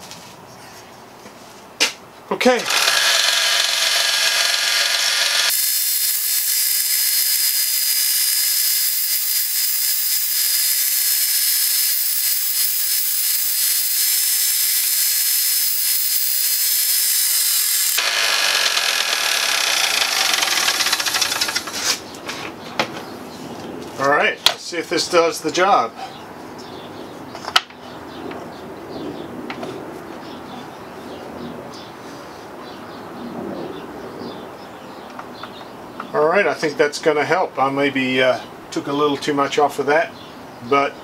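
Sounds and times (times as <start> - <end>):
belt sander sanding wood: 2.6 - 22.1.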